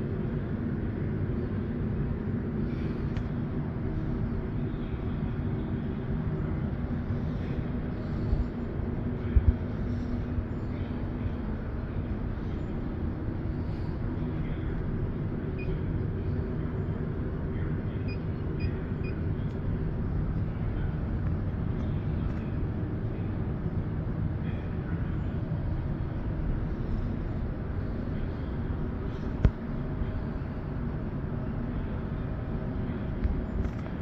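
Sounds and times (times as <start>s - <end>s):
airport terminal rumble: 0.0s - 34.0s
faint short beeps: 18.0s - 19.2s.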